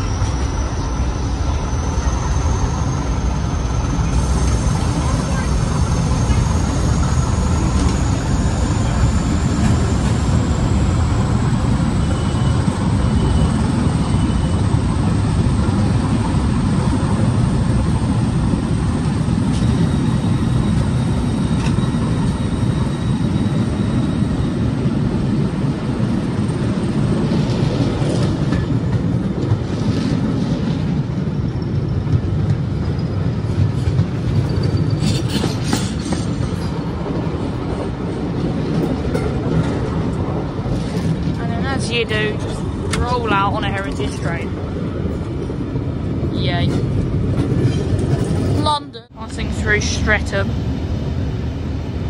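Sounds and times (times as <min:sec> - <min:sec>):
train diesel engine drone: 0:00.0 - 0:52.0
wheels clicking over rail joints: 0:31.7 - 0:48.6.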